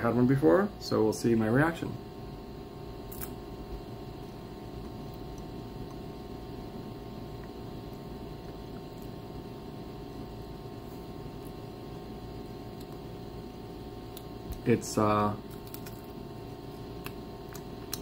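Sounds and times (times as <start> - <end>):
low room hum and hiss: 0.0 - 18.0
chewing clicks: 12.7 - 13.0, 14.1 - 14.7, 15.4 - 18.0.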